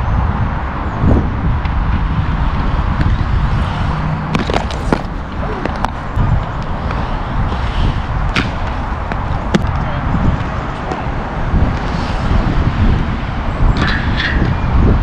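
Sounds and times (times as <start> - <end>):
skate wheels rolling on concrete: 0.0 - 15.0
skates clacking on concrete: 4.3 - 11.1.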